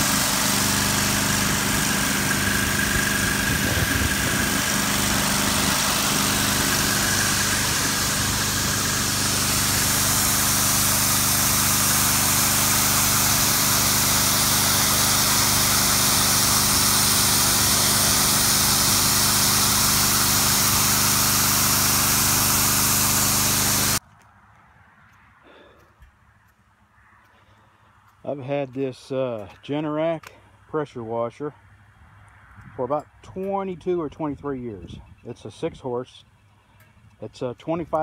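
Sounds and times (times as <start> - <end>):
high-pressure spray hissing on concrete: 0.0 - 24.0
pressure washer engine running: 0.0 - 24.0.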